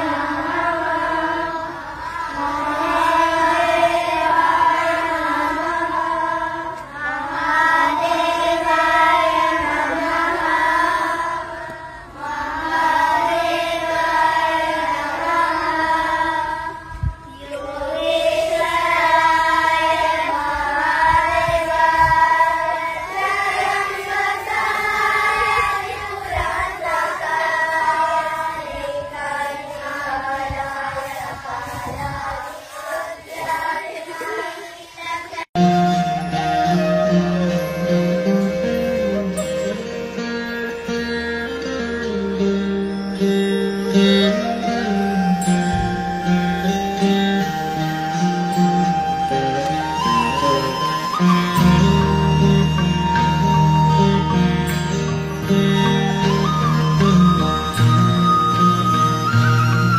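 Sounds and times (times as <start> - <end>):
girls chanting in unison: 0.0 - 35.5.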